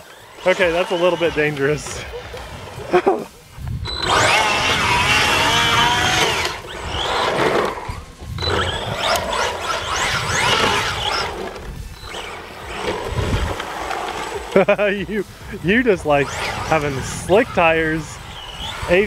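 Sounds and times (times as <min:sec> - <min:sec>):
electric motor whining: 0:00.0 - 0:19.0
tyres sliding on wet asphalt: 0:09.1 - 0:19.0.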